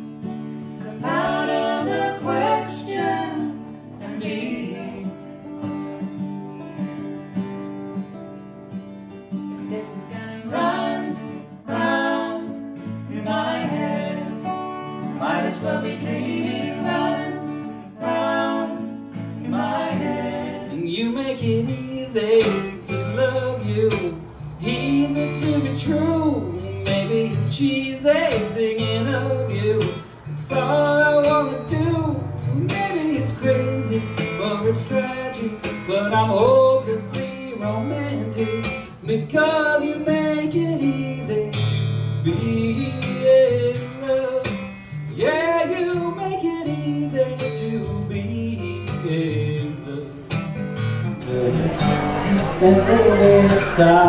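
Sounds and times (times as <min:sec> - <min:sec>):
acoustic guitars strummed: 0:00.0 - 0:54.0
solo singer with acoustic guitar: 0:00.0 - 0:54.0
man singing: 0:19.5 - 0:41.6, 0:42.2 - 0:44.6, 0:45.2 - 0:50.3, 0:51.2 - 0:54.0.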